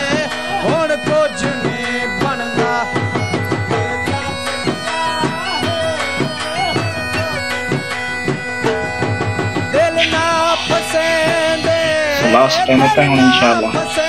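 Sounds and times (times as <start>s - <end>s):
bending melody line: 0.0s - 14.0s
steady drum beat: 7.7s - 14.0s
held drone: 9.9s - 13.8s.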